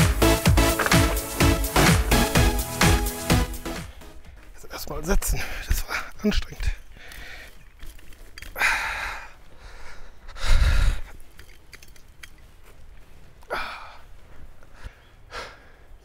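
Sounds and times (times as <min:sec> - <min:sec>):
man breathing out heavily: 0:06.9 - 0:07.6, 0:08.5 - 0:11.2, 0:13.5 - 0:16.0.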